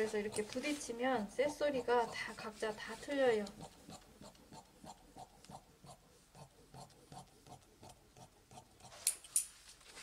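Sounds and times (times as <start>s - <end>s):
shears snipping fabric: 0.0s - 1.0s.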